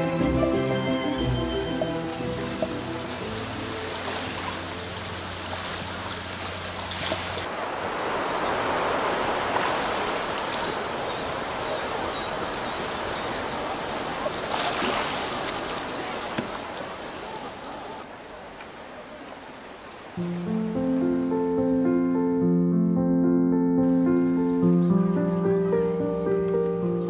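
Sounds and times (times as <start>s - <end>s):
background music: 0.0s - 5.3s, 20.2s - 27.0s
sea waves washing ashore: 0.0s - 22.3s.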